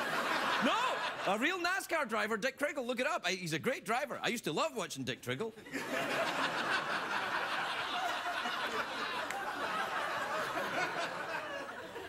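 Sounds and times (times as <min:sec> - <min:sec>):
audience laughing: 0:00.0 - 0:01.4, 0:05.6 - 0:12.0.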